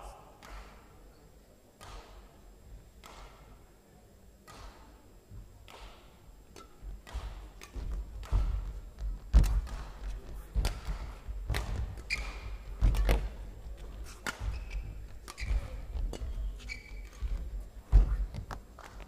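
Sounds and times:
racket striking shuttlecock: 0.4s - 0.9s, 3.0s - 3.5s, 5.6s - 13.4s, 14.1s - 19.0s
thudding footwork on court: 7.1s - 19.0s
shoe squeaks: 12.0s - 12.5s, 14.4s - 17.4s.

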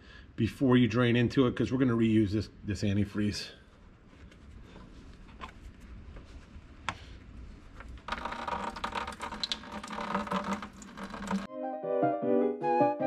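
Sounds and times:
liquid splashing into plastic bucket: 8.0s - 11.5s
drain valve clicks: 8.1s - 11.5s.

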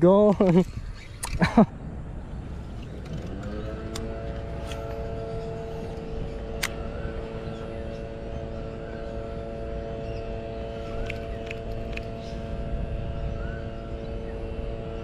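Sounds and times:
low wind rumble: 0.0s - 15.0s
motor hum: 0.0s - 15.0s
sharp clicks: 6.5s - 6.8s, 11.0s - 12.1s.

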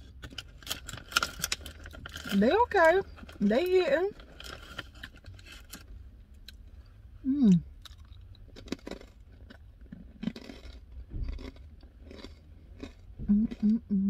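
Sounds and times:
person chewing crunchy crackers: 0.0s - 3.4s, 7.3s - 14.0s
woman humming: 7.2s - 7.7s, 13.3s - 14.0s.

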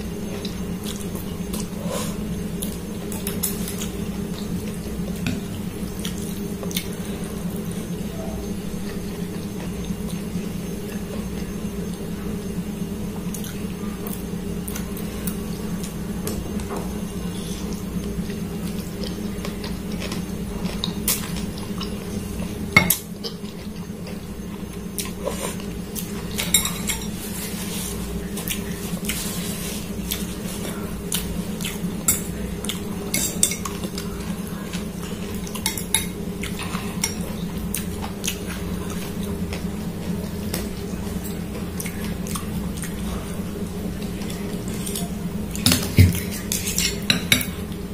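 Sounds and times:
cutlery clinking against glass bowl: 26.4s - 27.2s, 45.6s - 47.6s.

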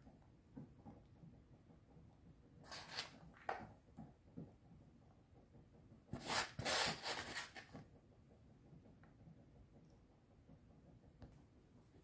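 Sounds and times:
cheese sprinkled by hand: 2.6s - 3.3s, 6.2s - 7.8s.

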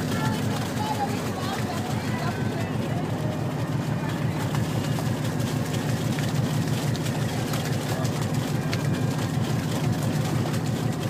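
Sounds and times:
boat engine idling: 0.0s - 11.0s.

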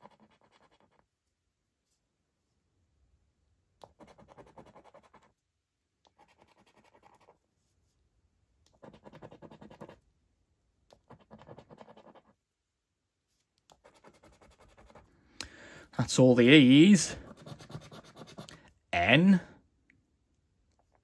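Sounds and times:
scratchcard being scratched: 0.0s - 1.0s, 3.9s - 5.3s, 6.1s - 7.4s, 8.8s - 10.0s, 11.0s - 12.4s, 13.7s - 15.0s, 17.2s - 18.6s.

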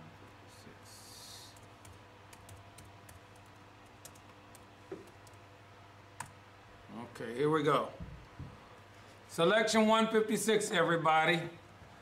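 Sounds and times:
typing on computer keyboard: 1.6s - 5.4s.

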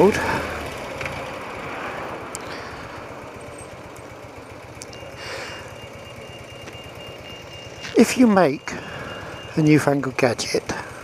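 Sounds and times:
motorcycle engine at low revs: 0.0s - 11.0s
road and air noise: 0.0s - 11.0s
high-pitched crossing beep: 4.8s - 10.6s.

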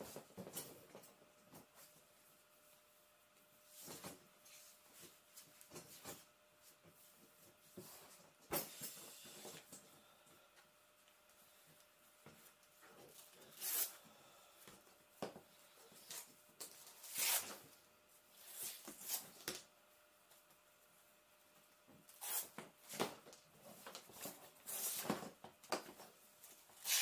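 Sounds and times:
velcro straps tearing: 17.0s - 17.6s, 26.8s - 27.0s.

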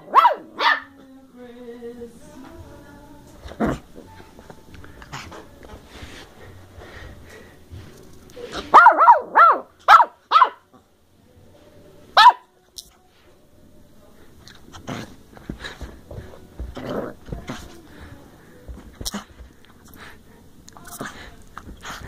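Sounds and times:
puppy yapping: 0.0s - 0.9s, 8.7s - 10.6s.

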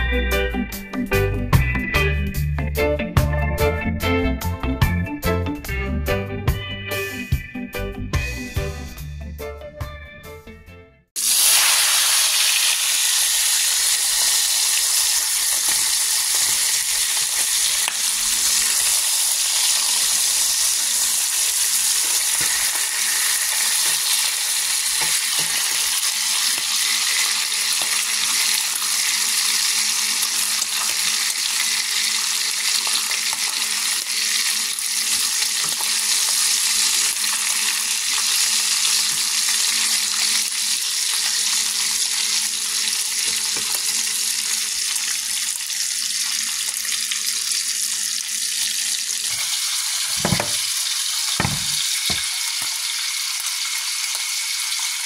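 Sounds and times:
bacon sizzling in a skillet: 11.2s - 55.0s.

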